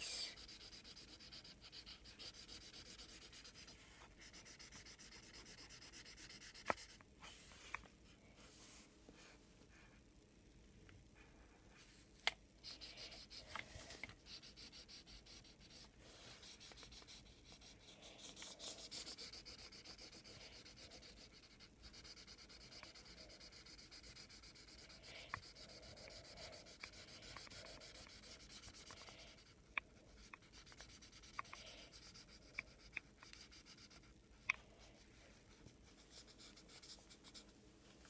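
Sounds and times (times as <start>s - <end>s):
felt-tip marker rubbing on paper: 0.2s - 7.0s, 12.6s - 34.2s
light ticks of marker: 32.5s - 34.6s.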